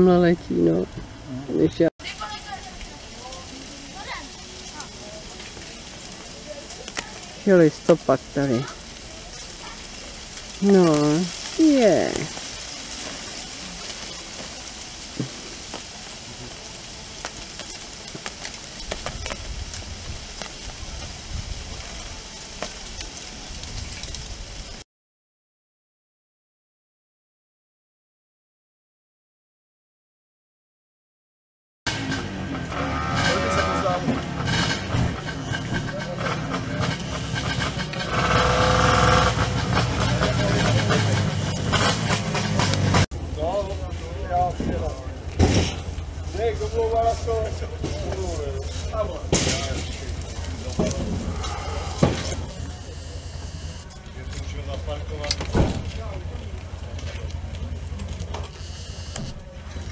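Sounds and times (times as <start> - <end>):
wind through tree leaves: 0.0 - 24.8, 31.9 - 59.9
motorcycle engine rumbling: 31.9 - 59.9.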